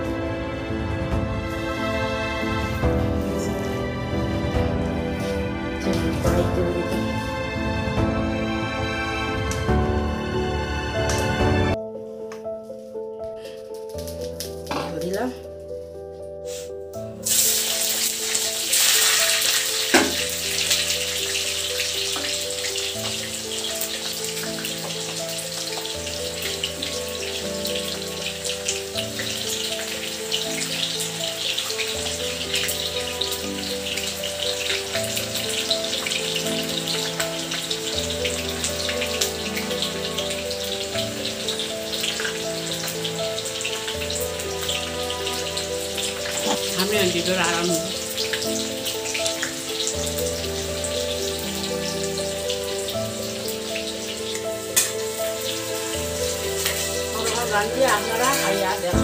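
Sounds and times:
background music with held notes: 0.0s - 59.0s
potatoes sizzling in hot oil: 16.5s - 59.0s.

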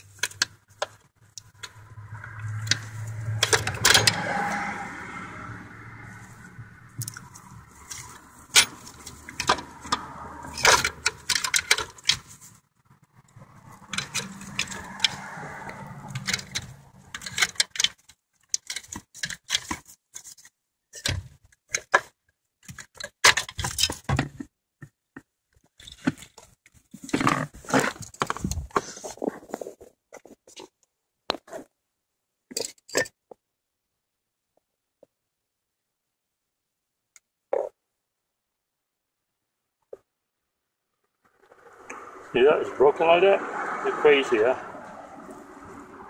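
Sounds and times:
metal tools clinking: 2.7s - 4.2s, 7.9s - 12.4s.

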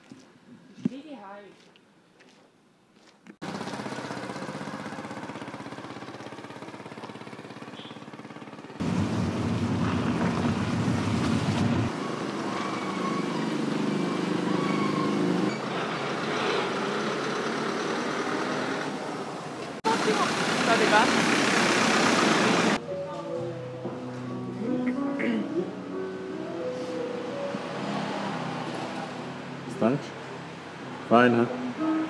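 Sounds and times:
vehicle engine running: 3.4s - 12.3s, 19.8s - 22.8s.

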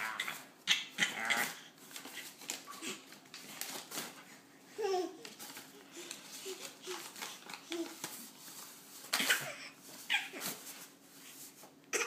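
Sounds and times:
baby giggling and squealing: 9.2s - 10.5s.

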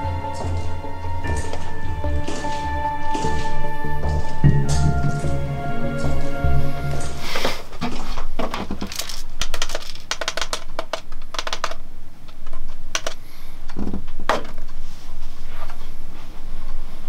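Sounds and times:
objects knocking: 0.0s - 11.8s
small hard objects clicking: 8.4s - 13.8s.

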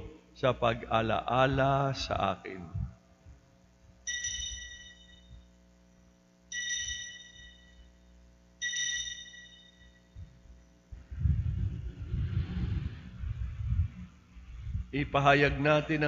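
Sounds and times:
altar bell ringing: 4.1s - 5.4s, 6.5s - 8.0s, 8.6s - 10.2s.

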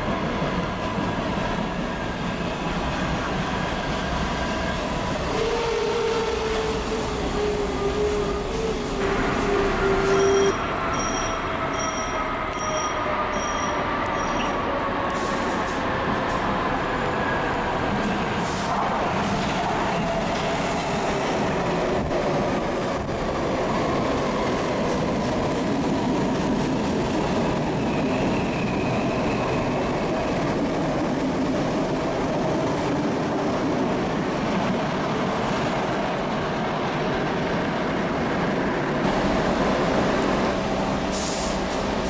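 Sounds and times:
train wheels rumbling on rails: 0.0s - 42.0s
faint high squeal: 7.4s - 14.6s.

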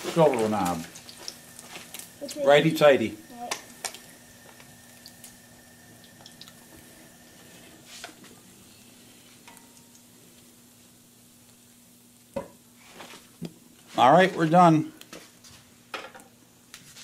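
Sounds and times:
fish frying in oil: 0.0s - 13.4s.

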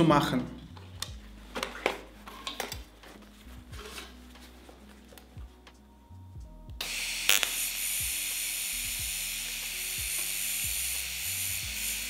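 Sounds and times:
welding arc sizzling hiss: 6.8s - 12.0s.

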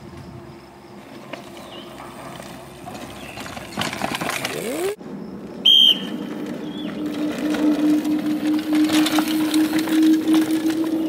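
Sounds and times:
whistle blast: 5.6s - 11.0s.

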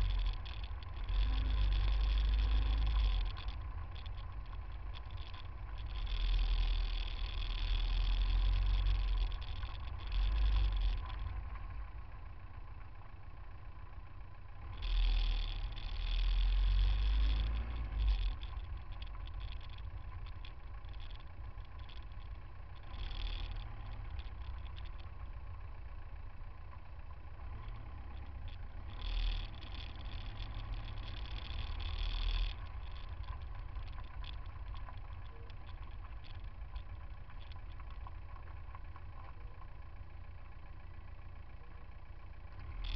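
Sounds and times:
car engines rumbling in traffic: 0.0s - 42.9s.

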